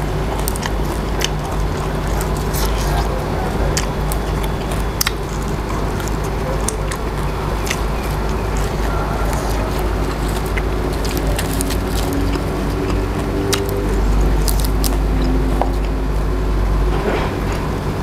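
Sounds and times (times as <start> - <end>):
herbs crackling and rustling: 0.0 - 16.4
low background rumble: 0.0 - 18.0.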